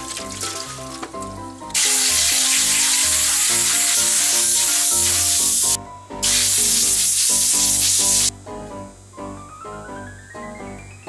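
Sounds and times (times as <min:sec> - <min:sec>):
compressed air blow gun hissing: 0:01.8 - 0:08.3.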